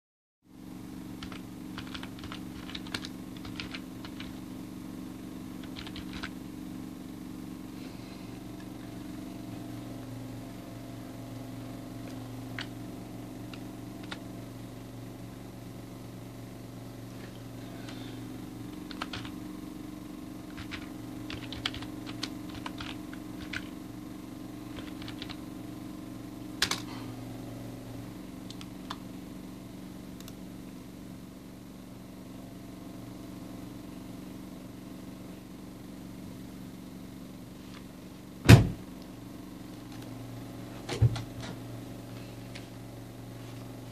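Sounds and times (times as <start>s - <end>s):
steady low hum: 0.5s - 43.9s
keyboard keys clicking: 1.2s - 4.4s, 5.6s - 6.3s, 13.5s - 14.2s, 18.8s - 19.3s, 20.5s - 23.7s, 24.8s - 25.4s, 26.6s - 26.9s.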